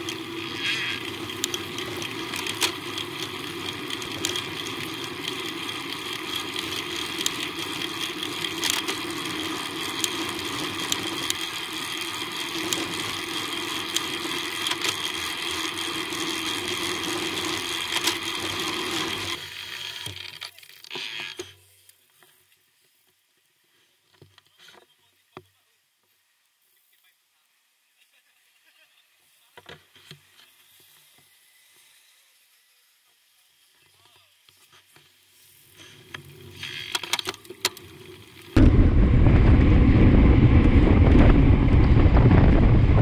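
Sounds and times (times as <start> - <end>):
wind and road noise while cycling: 0.0 - 20.8, 30.0 - 43.0.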